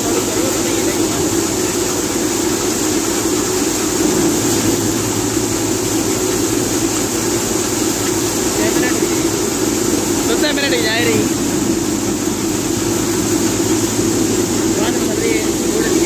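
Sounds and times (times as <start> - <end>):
wheat thresher running: 0.0 - 16.0.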